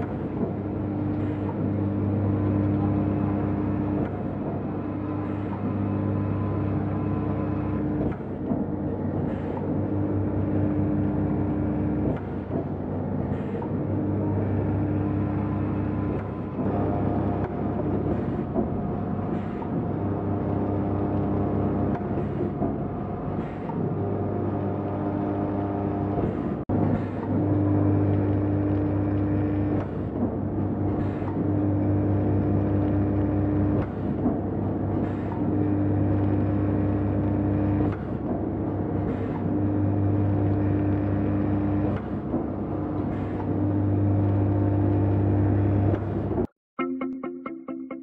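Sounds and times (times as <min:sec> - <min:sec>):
packing machine motor hum: 0:00.0 - 0:46.5.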